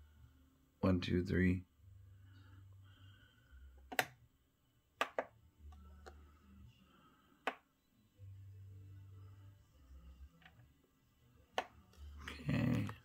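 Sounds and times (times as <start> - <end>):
faint low hum: 0.0 - 13.0
plastic button clicks: 5.0 - 5.3.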